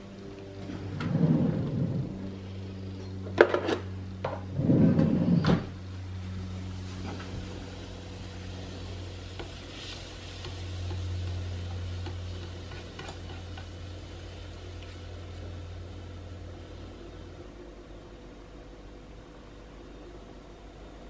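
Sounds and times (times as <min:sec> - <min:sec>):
low steady hum: 0:00.0 - 0:21.0
water simmering in a pan: 0:06.2 - 0:20.0.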